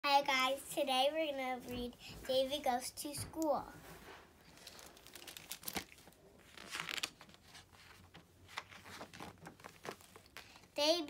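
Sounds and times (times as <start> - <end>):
book pages turning: 4.4 - 10.7.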